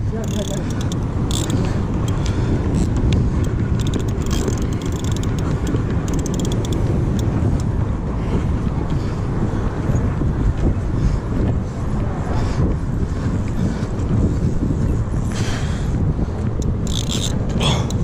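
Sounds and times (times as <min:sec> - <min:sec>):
wind buffeting microphone: 0:00.0 - 0:18.0
fishing reel ticking: 0:00.1 - 0:07.7, 0:16.6 - 0:18.0.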